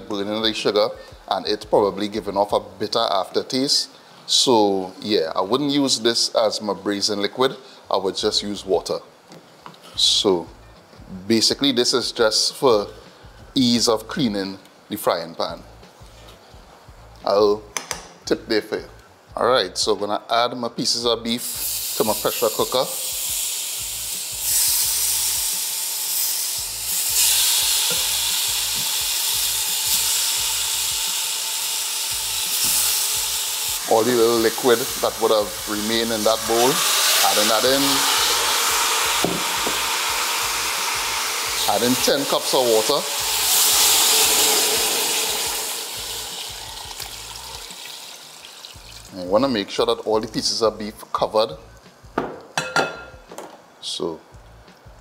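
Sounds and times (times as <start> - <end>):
beef sizzling in hot pot: 21.4 - 49.3.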